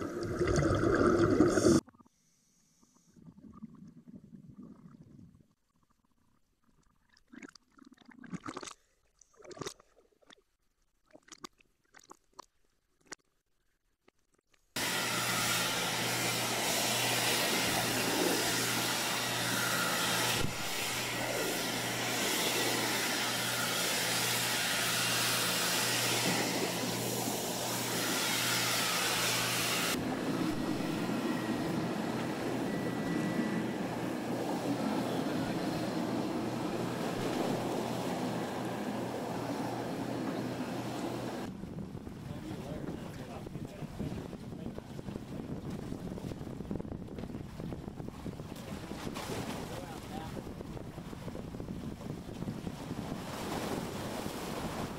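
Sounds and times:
underwater clicks and pops: 0:11.1 - 0:13.4
water washing close by: 0:14.8 - 0:46.5, 0:47.4 - 0:54.9
boat engine humming: 0:14.8 - 0:46.7
ocean waves: 0:30.0 - 0:41.4, 0:52.8 - 0:54.9
wind buffeting the microphone: 0:41.5 - 0:54.9.

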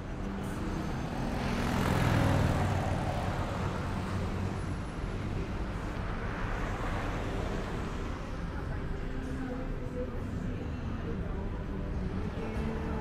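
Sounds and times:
steady traffic hum: 0:00.0 - 0:13.0.

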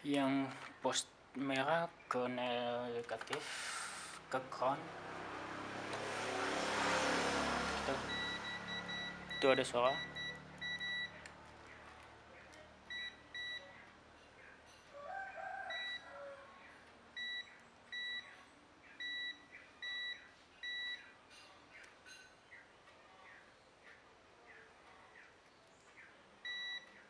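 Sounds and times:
multimeter short high beeps: 0:08.1 - 0:11.2, 0:19.0 - 0:21.0.

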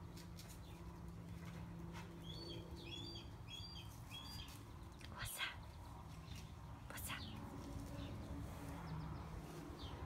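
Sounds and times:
small bird chirping: 0:02.2 - 0:10.0.

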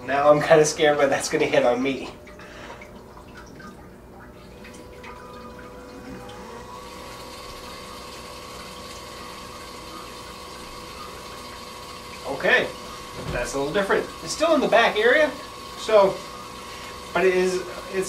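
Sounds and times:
bidet pump humming: 0:00.0 - 0:18.0
water spraying: 0:04.4 - 0:18.0.

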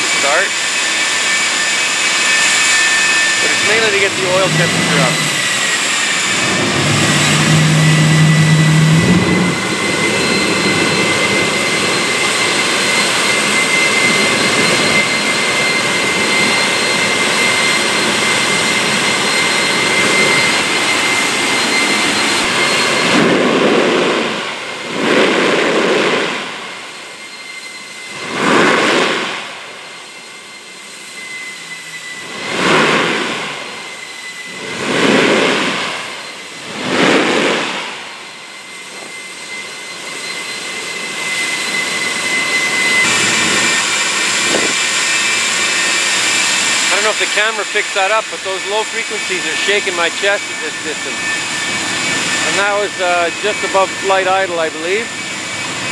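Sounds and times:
jet engine roar with whine: 0:00.0 - 0:55.9
low rumble: 0:03.3 - 0:12.3.

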